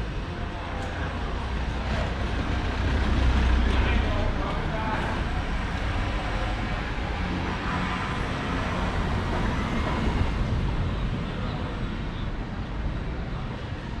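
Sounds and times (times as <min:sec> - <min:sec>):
passing motor traffic rumble: 0:00.0 - 0:14.0.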